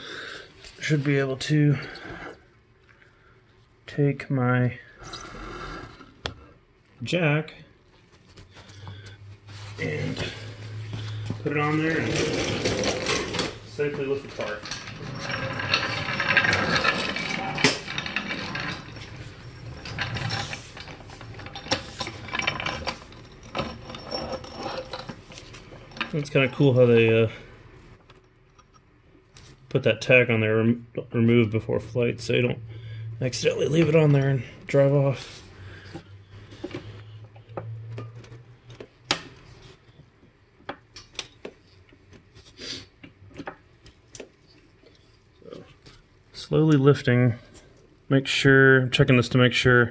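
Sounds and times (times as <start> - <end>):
floor jack rolling on concrete: 11.3 - 26.8
wheels and handle rattling: 11.5 - 26.9.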